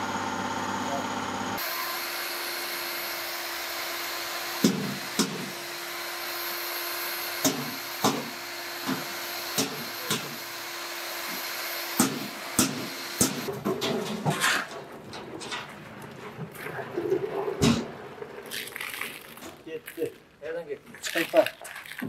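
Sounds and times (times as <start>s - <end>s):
electric paddle mixer running: 0.0s - 13.5s.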